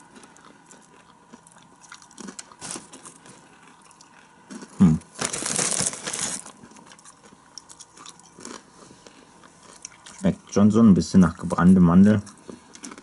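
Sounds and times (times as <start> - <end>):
popcorn crunching and chewing: 0.0 - 13.0
foil bag crinkling: 2.1 - 3.4, 4.5 - 7.1.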